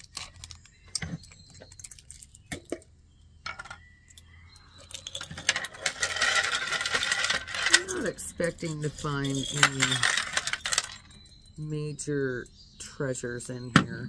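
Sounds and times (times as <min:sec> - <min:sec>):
glass jar clicks and scrapes: 0:00.0 - 0:11.5
jewelry clattering onto a tray: 0:03.5 - 0:04.2, 0:04.8 - 0:11.3.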